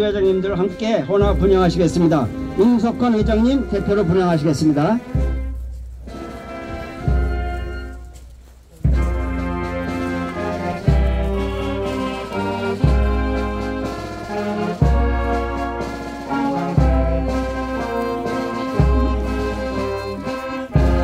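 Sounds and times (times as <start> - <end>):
brass band playing slow chords: 0.0 - 21.0
heavy low drum note: 1.2 - 7.8.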